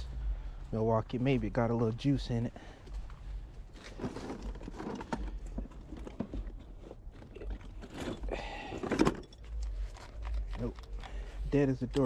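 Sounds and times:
tools clattering in car trunk: 3.8s - 11.0s.

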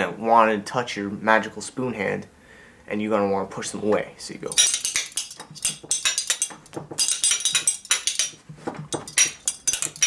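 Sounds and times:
spoons clacking: 4.5s - 10.0s.

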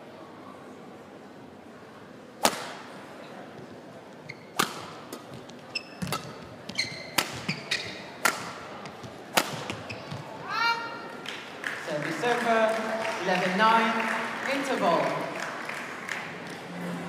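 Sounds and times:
rackets striking shuttlecock: 2.4s - 2.9s, 4.5s - 10.2s
shoes squeaking on court floor: 4.1s - 10.5s.

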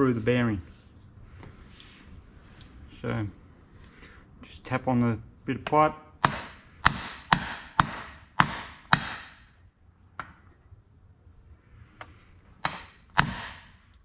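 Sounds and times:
hammer striking steel pipe: 6.2s - 9.5s, 12.6s - 13.8s.

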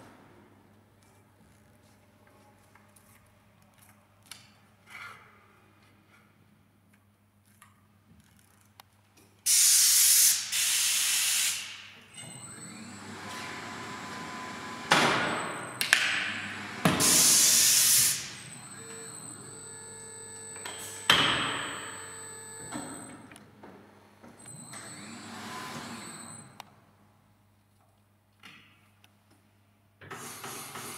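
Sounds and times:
mechanical hum: 0.0s - 30.9s
compressed air hissing bursts: 9.5s - 11.8s, 17.0s - 18.4s.

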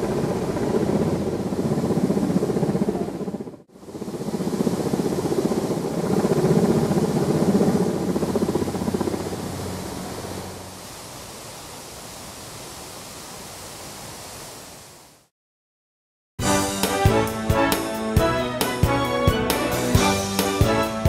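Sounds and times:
helicopter flying overhead: 0.0s - 10.7s.

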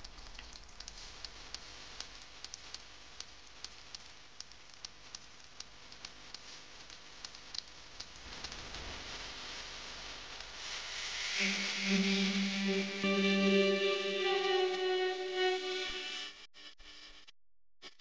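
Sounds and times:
faint hiss: 8.2s - 16.2s.

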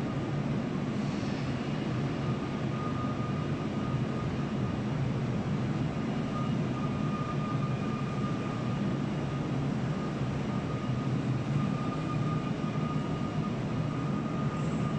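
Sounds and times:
machinery thin steady whine: 0.0s - 14.9s.

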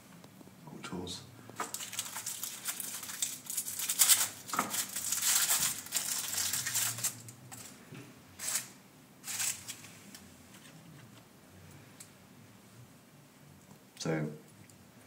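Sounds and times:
wrapper crinkling and tearing: 1.6s - 7.8s, 8.4s - 9.9s.

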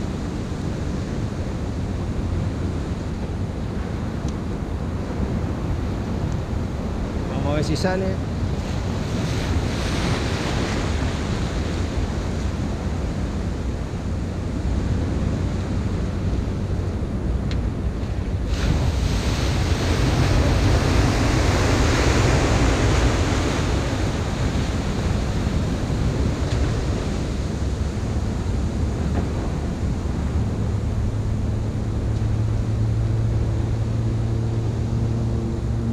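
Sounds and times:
big wave breaking: 0.0s - 17.4s, 18.0s - 35.9s
surf breaking against breakwater: 18.1s - 33.7s.

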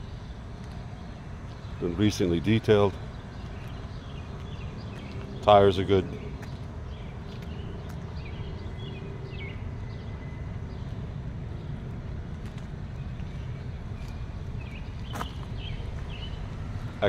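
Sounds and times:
steady low rumble: 0.0s - 17.0s
bird chirps: 13.0s - 17.0s.

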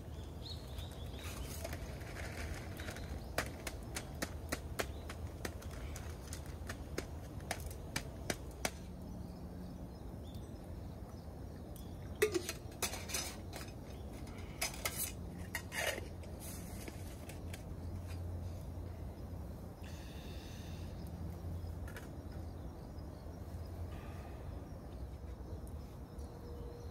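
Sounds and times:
metal cookware clinking and clattering: 12.2s - 13.8s.

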